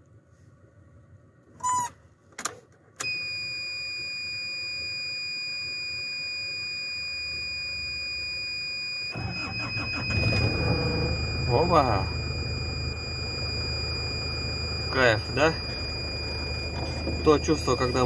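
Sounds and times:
ignition clicks: 1.6 - 3.2, 9.2 - 12.2
dashboard warning buzzer: 9.1 - 18.0
starter cranking engine: 9.2 - 12.4.

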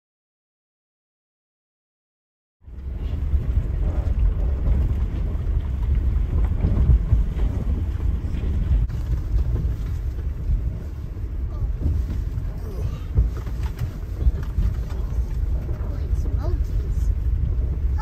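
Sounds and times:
tyres rumbling on gravel: 2.6 - 18.0
suspension knocks and jolts: 2.9 - 11.1.

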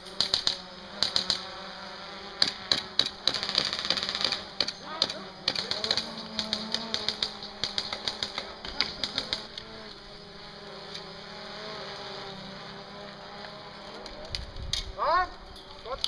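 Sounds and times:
camera drone humming: 0.0 - 15.6
airsoft guns clicking: 2.4 - 9.7.

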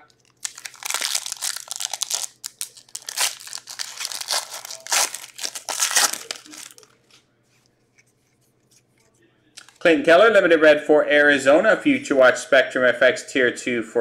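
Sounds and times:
wrapper crinkling and crunching: 0.0 - 7.0.

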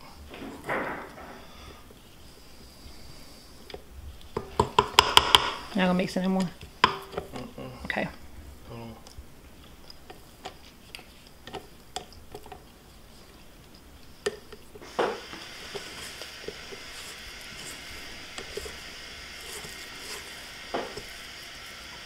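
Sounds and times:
spatula scraping dough in bowl: 9.7 - 21.4.

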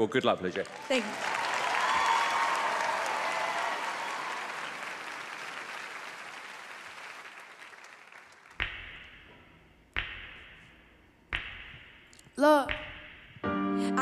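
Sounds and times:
studio audience applauding: 0.0 - 8.6.

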